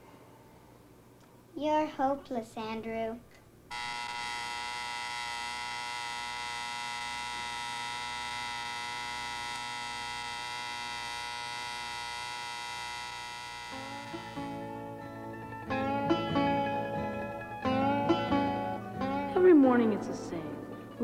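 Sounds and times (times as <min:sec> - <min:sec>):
alarm clock buzzer: 0:03.7 - 0:15.0
acoustic guitar music: 0:13.7 - 0:21.0.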